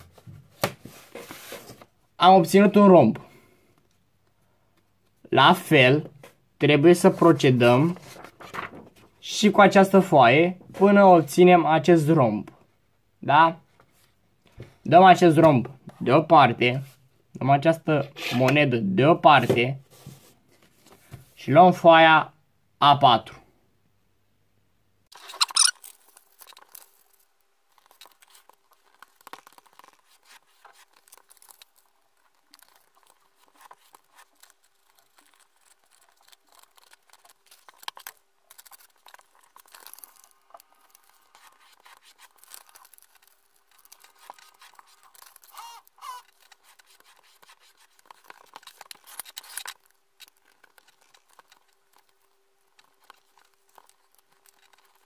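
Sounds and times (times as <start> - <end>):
paper rustling and crinkling: 0.0 - 2.0, 6.2 - 9.2, 19.3 - 21.4, 25.1 - 55.0.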